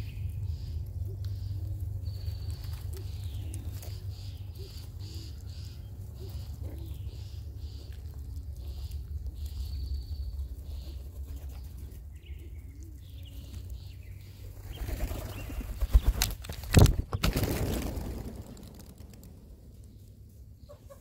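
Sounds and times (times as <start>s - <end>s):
pigeon wings clattering: 14.6s - 19.9s.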